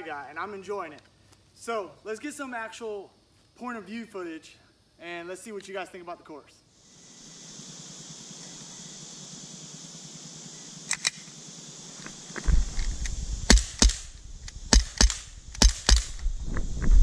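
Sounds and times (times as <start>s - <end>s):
air pistol firing cracks: 10.9s - 11.4s, 12.1s - 16.3s
low rumble on microphone: 12.4s - 17.0s.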